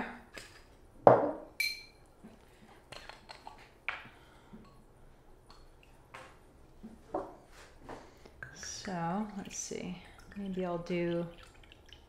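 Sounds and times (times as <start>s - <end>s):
glass clink: 1.1s - 2.0s
glassware taps and clicks: 1.1s - 2.0s.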